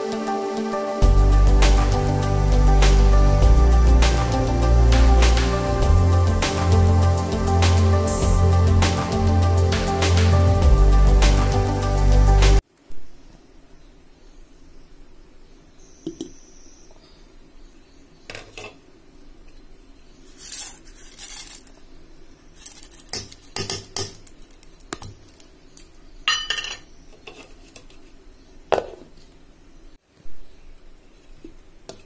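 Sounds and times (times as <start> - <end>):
steel utensils clinking and scraping: 20.4 - 21.7, 26.3 - 27.6.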